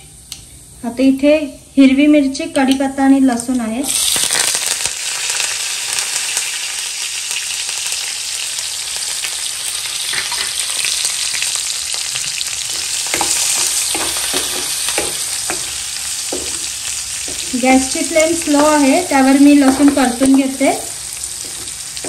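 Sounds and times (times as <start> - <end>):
food sizzling in hot oil: 3.3 - 22.0
spatula scraping pan: 12.6 - 22.0.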